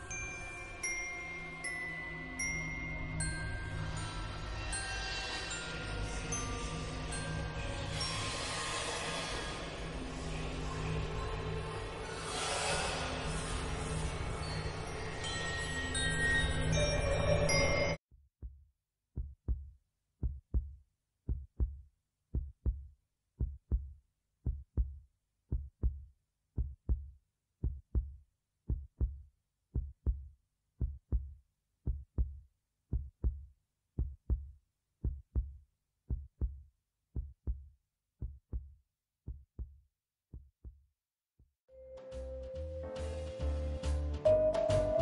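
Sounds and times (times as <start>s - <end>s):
heartbeat thumps: 19.2s - 26.0s, 26.6s - 29.2s, 29.8s - 31.3s, 31.9s - 33.4s, 34.0s - 36.6s, 37.2s - 38.7s, 39.3s - 39.8s, 40.4s - 40.8s.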